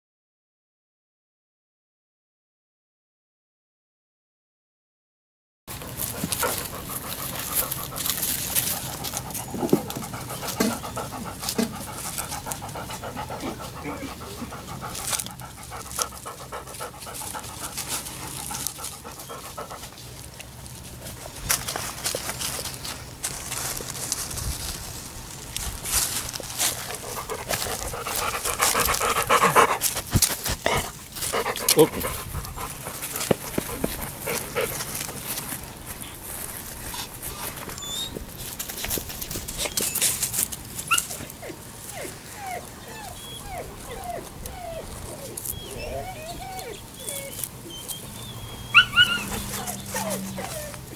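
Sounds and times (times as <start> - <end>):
dog panting: 5.7 - 22.9, 25.8 - 40.1, 41.4 - 50.9
rustling and scuffling: 5.7 - 42.6, 49.1 - 50.9
puppy whimpering: 6.2 - 17.6, 26.9 - 34.8, 37.6 - 38.2, 40.9 - 50.9.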